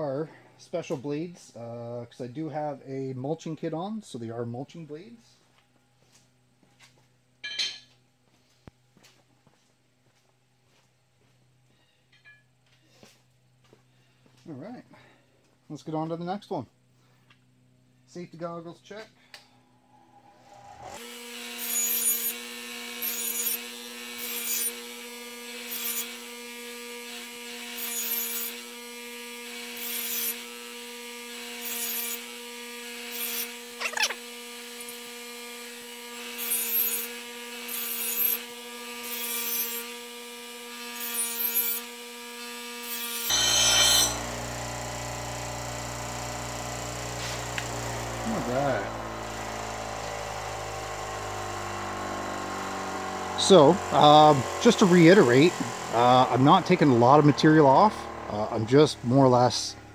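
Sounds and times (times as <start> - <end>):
bench grinder humming: 19.9 - 59.9
blade rasping against grinding wheel: 20.5 - 28.8, 29.4 - 59.3.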